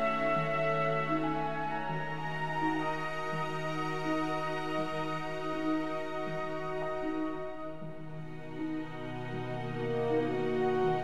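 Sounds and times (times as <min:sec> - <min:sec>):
slow sad orchestral music: 0:00.0 - 0:11.0.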